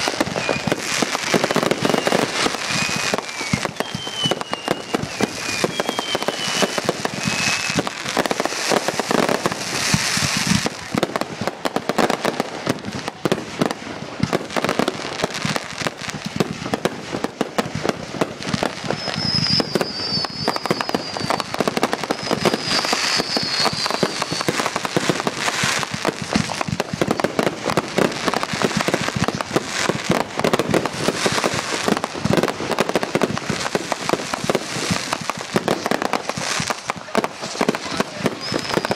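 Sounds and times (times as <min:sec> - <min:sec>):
falling firework whistle: 0:00.0 - 0:38.9
fireworks popping and crackling: 0:00.0 - 0:38.9
high wavering whistles: 0:00.3 - 0:00.8, 0:01.7 - 0:07.8, 0:18.8 - 0:24.5.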